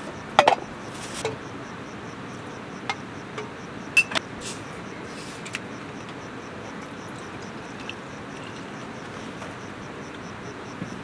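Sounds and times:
insects chirping: 0.0 - 11.0
glass bottle clinks: 3.4 - 4.2.

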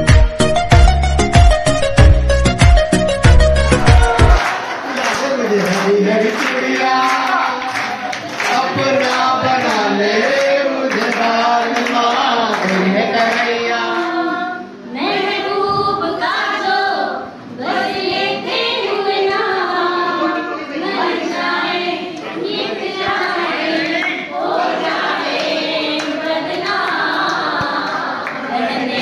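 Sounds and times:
group of adults singing: 5.9 - 29.0.

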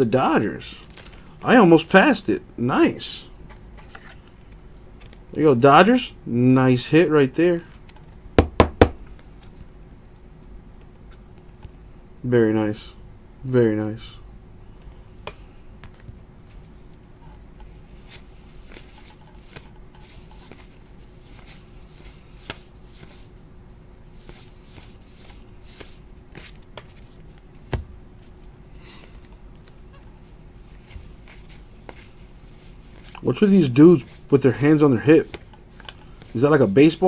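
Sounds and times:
faint hum: 0.0 - 37.0
trading cards flipping and clicking: 17.6 - 23.3, 24.2 - 33.3, 35.2 - 36.4.

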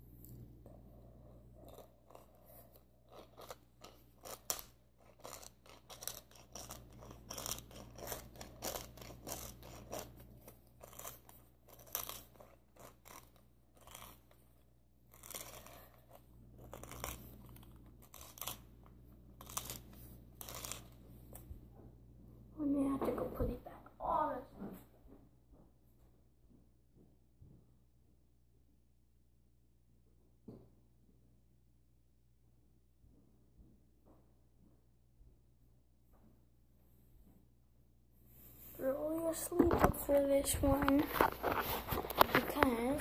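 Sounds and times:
pepper mill grinding: 1.6 - 18.7, 19.4 - 21.0.

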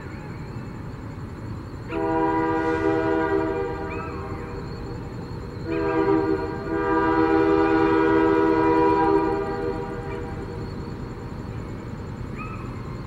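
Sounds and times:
locomotive air horn blasts: 1.9 - 3.9, 5.7 - 10.4.

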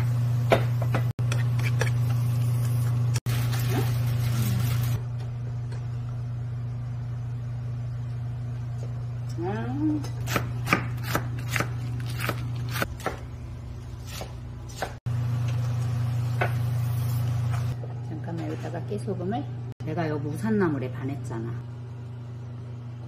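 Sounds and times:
steady low hum: 0.0 - 23.0
knife chopping on wooden board: 10.2 - 13.3, 14.0 - 15.0.

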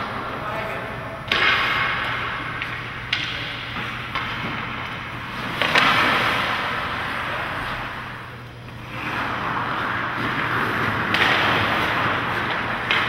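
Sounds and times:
skate blades scraping ice: 3.7 - 13.0.

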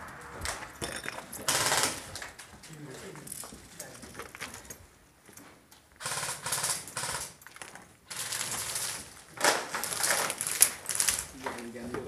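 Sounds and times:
airsoft rifles firing bursts: 1.5 - 2.2, 6.0 - 7.4, 8.1 - 11.1.

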